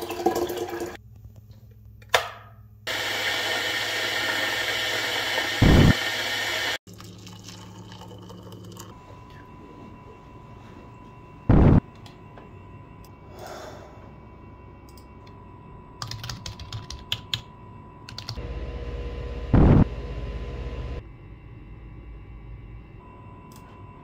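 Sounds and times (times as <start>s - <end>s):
low hum: 8.9s - 16.0s, 17.5s - 24.0s
keyboard typing clicks: 16.0s - 17.4s, 18.1s - 18.4s.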